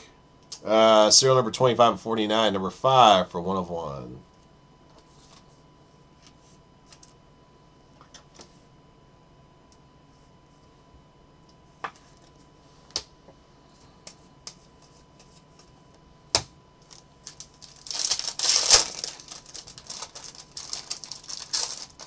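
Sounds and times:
foil pack tearing open: 16.9 - 22.0.

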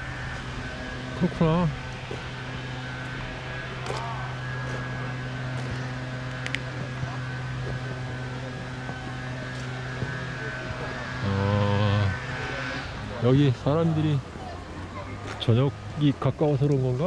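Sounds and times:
distant engine drone: 0.0 - 17.0.

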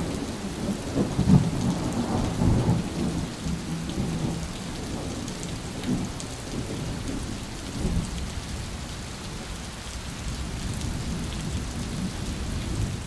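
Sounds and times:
thunder rumbling: 0.0 - 7.2
steady rain: 0.0 - 13.0.

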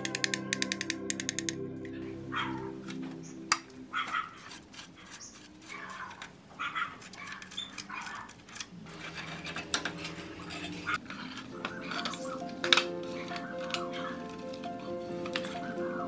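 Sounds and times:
metallic clicks and taps: 0.0 - 1.6.

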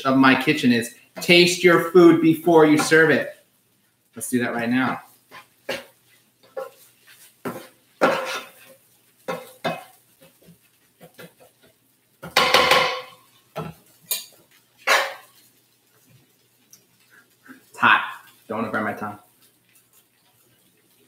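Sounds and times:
spatula scraping a pan: 4.9 - 16.4, 19.2 - 21.0.

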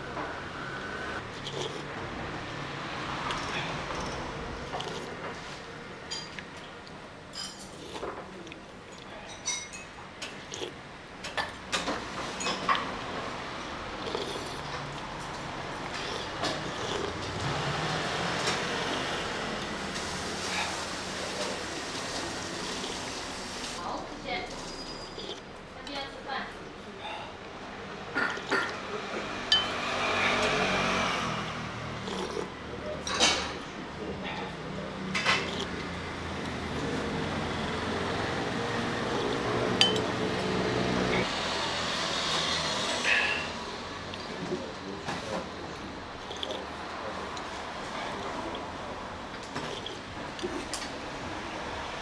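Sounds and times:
vehicle engine humming: 0.0 - 7.3, 12.0 - 23.8, 33.6 - 52.0
road traffic noise: 0.0 - 52.0
slurping soup from a spoon: 1.2 - 1.9, 3.2 - 5.6, 7.5 - 9.1, 10.2 - 10.8, 14.0 - 23.8, 24.7 - 25.5, 28.2 - 28.8, 29.6 - 32.5, 35.2 - 35.8, 38.0 - 41.3, 43.0 - 48.7, 49.4 - 50.8
metal spoon clinking on bowl: 29.5 - 29.8, 39.8 - 40.2
vehicle engine humming low: 33.6 - 52.0.

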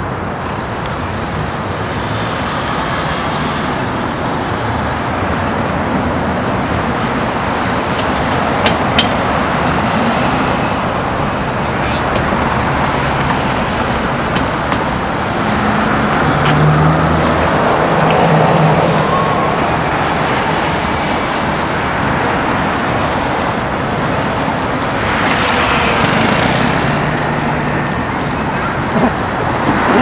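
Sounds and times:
city street traffic: 0.0 - 30.0
vehicle passing close by: 12.4 - 22.6.

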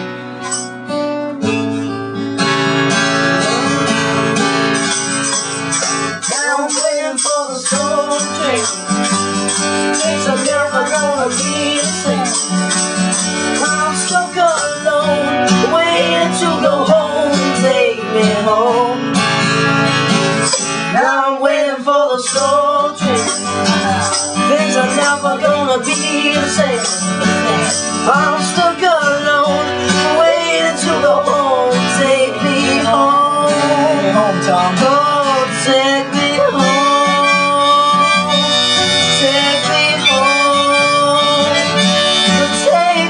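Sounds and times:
acoustic guitar strumming: 0.0 - 43.0
harmonica solo: 32.7 - 43.0.

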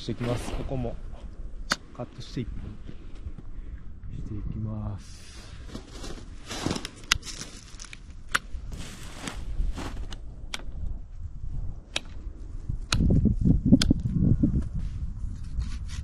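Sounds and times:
sharp clicks: 1.6 - 1.9, 10.1 - 10.8, 11.9 - 12.2, 12.9 - 14.0
footsteps in snow: 5.2 - 10.3
branches rustling: 5.2 - 10.5.

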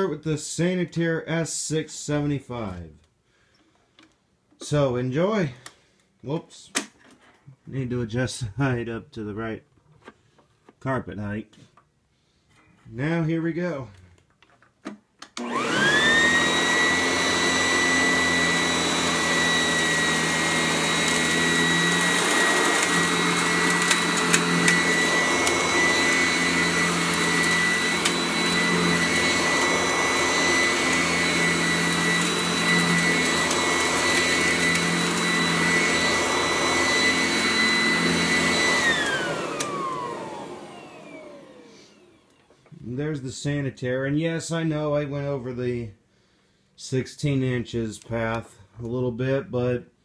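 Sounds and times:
vacuum cleaner motor whine: 15.4 - 42.6.

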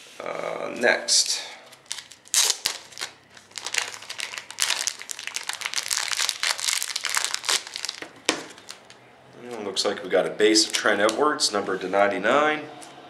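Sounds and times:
plastic bag crinkling: 1.7 - 9.0, 10.5 - 11.2.

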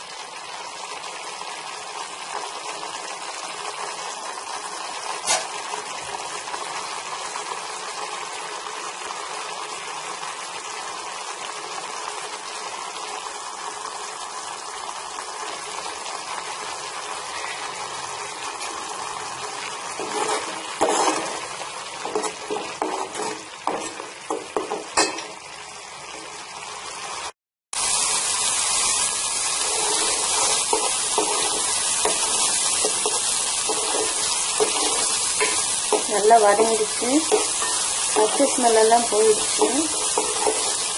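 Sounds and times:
paste sizzling in oil: 0.0 - 40.9
metal spoon scraping a pan: 5.2 - 5.6, 19.8 - 25.4, 29.6 - 40.9.

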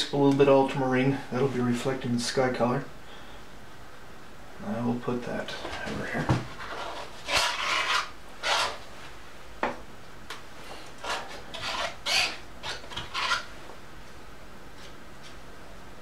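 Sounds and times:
palette knife scraping paint on canvas: 6.7 - 8.8, 11.0 - 13.5.

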